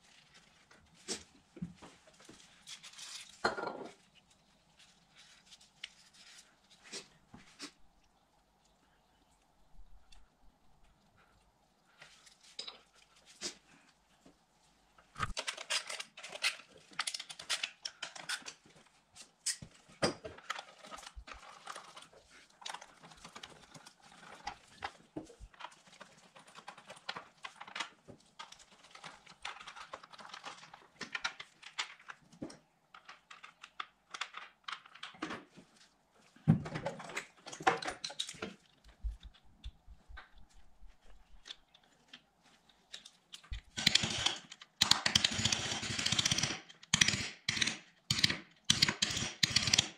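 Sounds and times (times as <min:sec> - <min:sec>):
hand tools clicking and tapping: 0:42.9 - 0:49.9.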